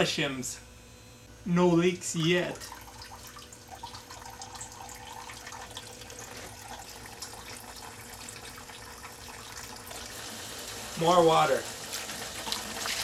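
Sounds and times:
water splashing into a tray: 0:11.6 - 0:13.0.

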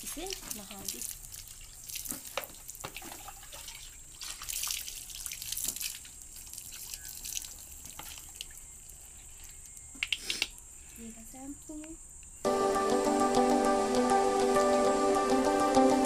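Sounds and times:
water splashing on fur: 0:00.0 - 0:08.6.

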